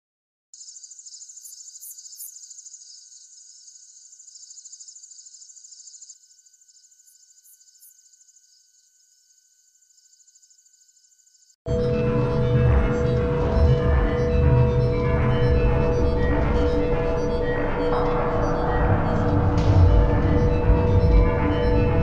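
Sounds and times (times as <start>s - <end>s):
crickets chirping: 0.6s - 11.7s.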